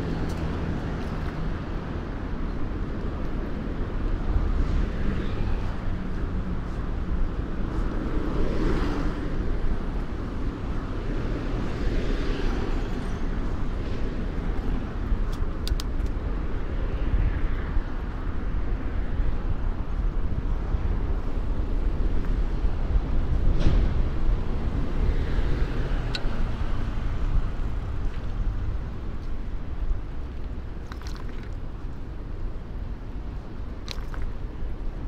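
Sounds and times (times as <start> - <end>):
motor traffic: 0.0 - 35.0
light bicycle clicks: 15.2 - 16.3.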